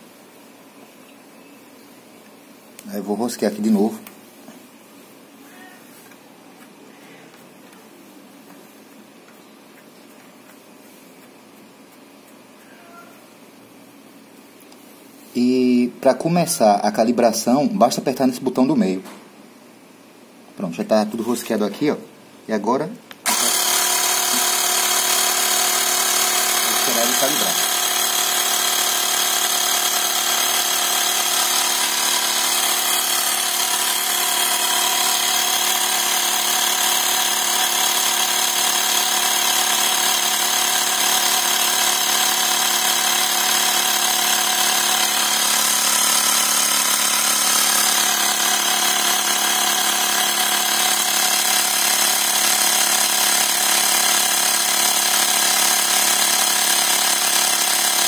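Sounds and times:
air compressor motor humming: 0:23.2 - 0:58.0.

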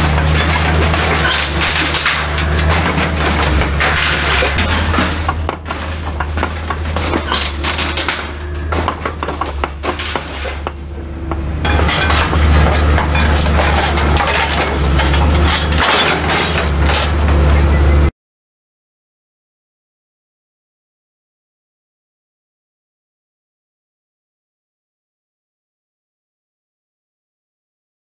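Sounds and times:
excavator diesel engine running: 0:00.0 - 0:18.1
scrap metal clanking and crunching: 0:00.0 - 0:18.1.

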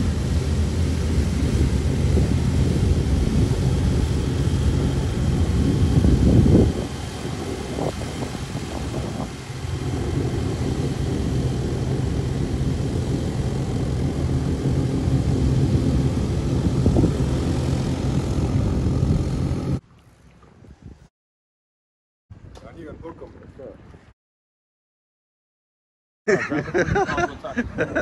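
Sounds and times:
airboat engine and propeller drone: 0:00.0 - 0:20.6.

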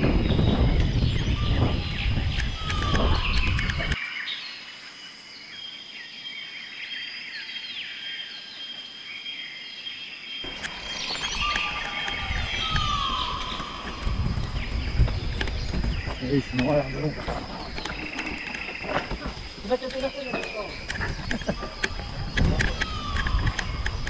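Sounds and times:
birds chirping: 0:00.0 - 0:24.0
mountain bike rumbling over dirt: 0:10.5 - 0:21.2.

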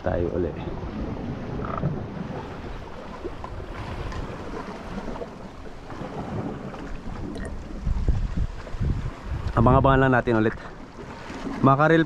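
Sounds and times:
wind buffeting microphone: 0:00.0 - 0:12.0
sea water washing on rocks: 0:00.7 - 0:12.0.

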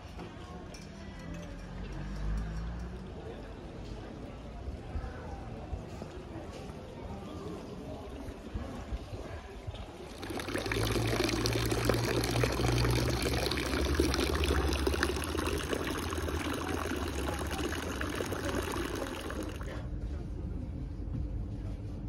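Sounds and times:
fountain water splashing into basin: 0:10.1 - 0:19.8.

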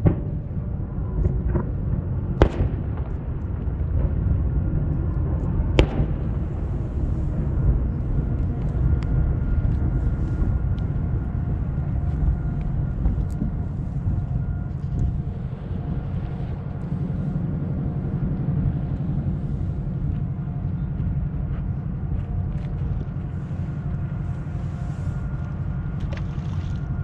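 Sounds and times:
low rumble: 0:00.0 - 0:27.0
firework booms: 0:02.4 - 0:03.3, 0:05.7 - 0:06.9
faint firework cracks: 0:05.8 - 0:06.4.

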